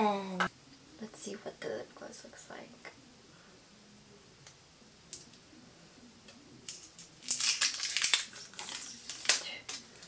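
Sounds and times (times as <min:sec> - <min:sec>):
packaging crinkling and rustling: 0:06.6 - 0:10.0
sharp crackle: 0:06.6 - 0:10.0.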